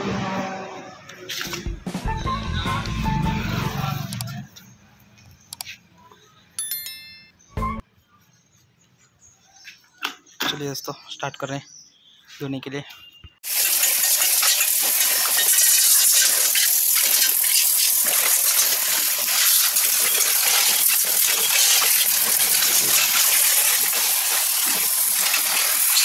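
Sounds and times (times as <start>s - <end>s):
water jet spraying on plastic: 13.4s - 26.0s.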